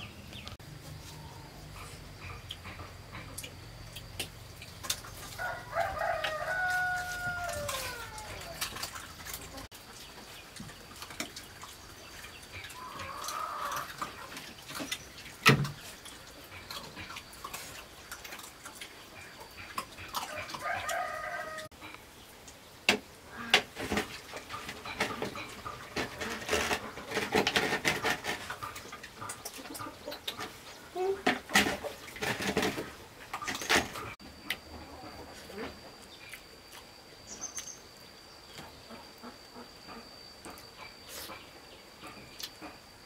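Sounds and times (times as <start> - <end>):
chickens clucking: 0.0 - 15.0, 23.3 - 36.0.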